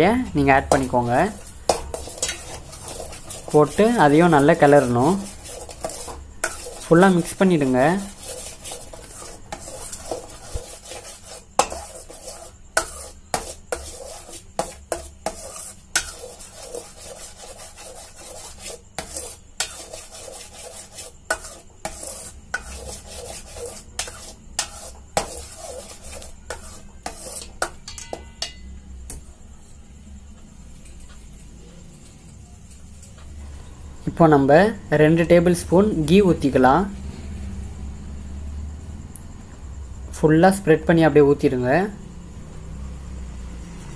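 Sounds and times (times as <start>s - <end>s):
metal spoon scraping a steel pan: 0.0s - 28.7s.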